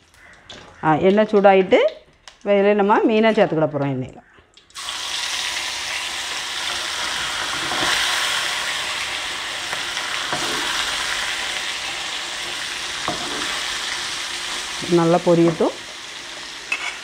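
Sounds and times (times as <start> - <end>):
fish sizzling in hot oil: 4.7 - 17.0.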